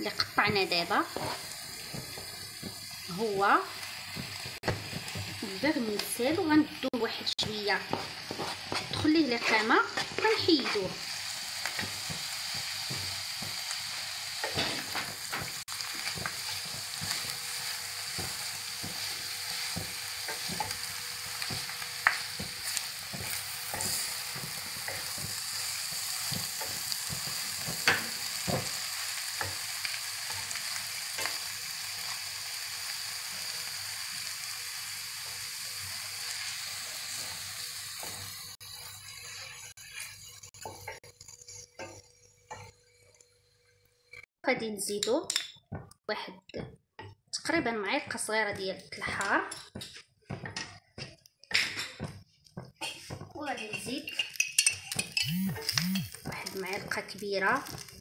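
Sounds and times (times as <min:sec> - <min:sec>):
noodles sizzling in a pan: 0:00.0 - 0:43.0, 0:49.8 - 0:58.0
wooden spoon knocking on pan: 0:00.3 - 0:02.8, 0:04.1 - 0:05.4, 0:07.4 - 0:09.1, 0:21.4 - 0:28.8, 0:48.5 - 0:53.8.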